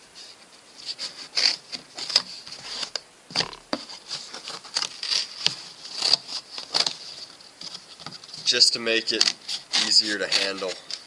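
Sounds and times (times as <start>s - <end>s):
scissors snipping cardboard: 9.1s - 11.0s.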